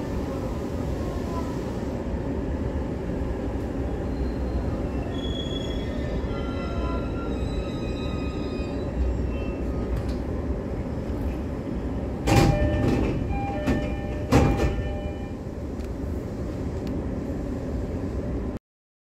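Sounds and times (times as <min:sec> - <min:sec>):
train doors sliding open: 0:00.0 - 0:18.0
train interior low rumble: 0:00.0 - 0:18.6
door chime: 0:12.3 - 0:15.3.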